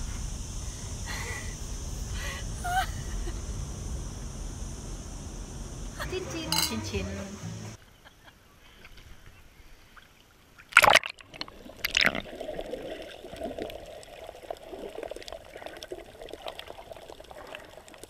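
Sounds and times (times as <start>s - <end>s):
muffled underwater wash: 0.0s - 6.5s, 9.5s - 18.0s
bubbly crackles: 10.6s - 18.0s.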